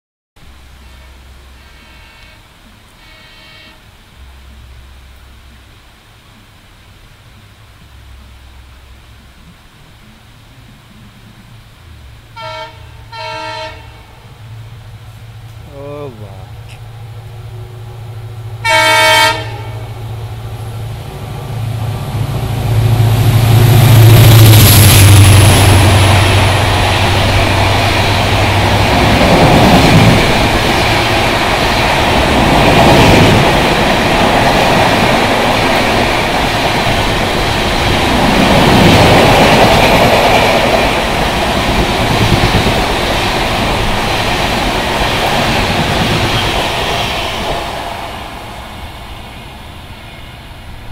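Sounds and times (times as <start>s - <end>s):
locomotive horn blast: 0.6s - 4.3s, 12.3s - 14.3s, 18.5s - 20.2s
diesel engine rumbling past: 4.0s - 50.9s
train wheels clattering on rails: 22.1s - 49.7s.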